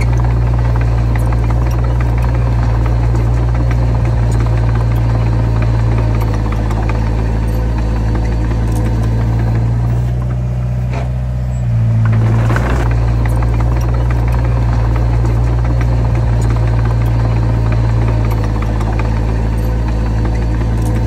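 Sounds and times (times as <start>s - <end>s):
heavy diesel engine running: 0.0s - 21.0s.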